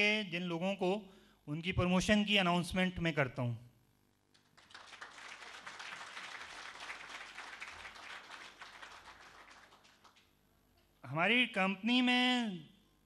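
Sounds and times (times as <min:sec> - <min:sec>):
audience applauding: 0:04.4 - 0:10.3.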